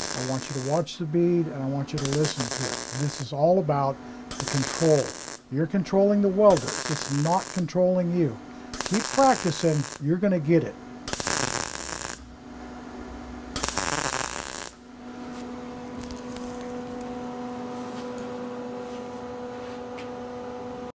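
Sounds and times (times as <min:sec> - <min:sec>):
welder arc crackling: 0:00.0 - 0:12.3, 0:13.5 - 0:14.8, 0:15.8 - 0:17.2
steady hum: 0:00.0 - 0:20.9.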